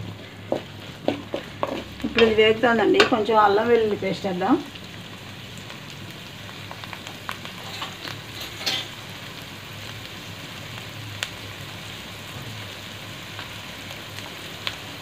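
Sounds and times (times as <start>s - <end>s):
vegetables sizzling in hot oil: 0.0s - 15.0s
wooden spatula knocking on pan: 0.4s - 2.4s.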